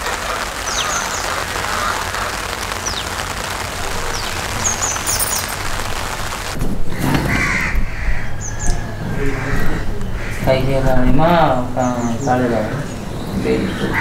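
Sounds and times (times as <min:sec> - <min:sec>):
steady hiss: 0:00.0 - 0:06.6
patchy background noise: 0:00.0 - 0:14.0
falling bird chirps: 0:04.0 - 0:05.9.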